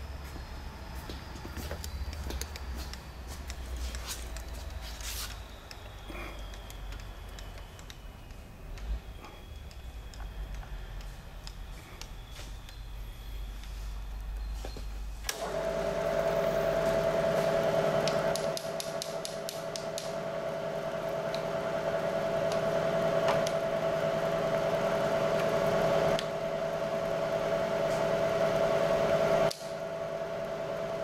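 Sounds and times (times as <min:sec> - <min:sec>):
milling machine motor humming: 0:15.3 - 0:31.0.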